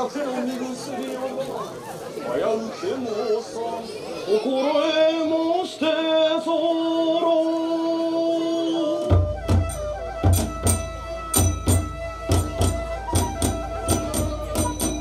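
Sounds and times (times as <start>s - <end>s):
drum beating deep rhythm: 9.1s - 15.0s
hand cymbals clashing: 10.7s - 12.0s, 13.9s - 15.0s.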